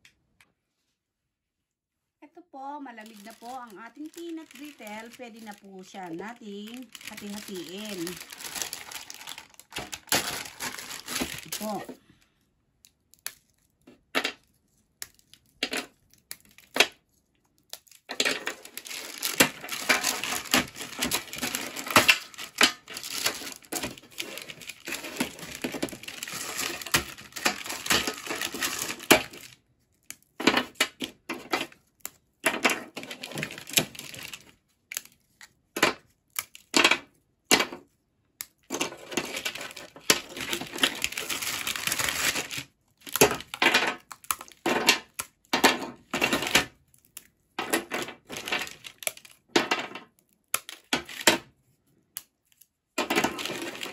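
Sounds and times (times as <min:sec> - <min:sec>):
peanut brittle snapping and crunching: 0:12.8 - 0:13.8, 0:14.9 - 0:37.6, 0:39.4 - 0:45.6, 0:46.7 - 0:47.5, 0:48.3 - 0:51.3.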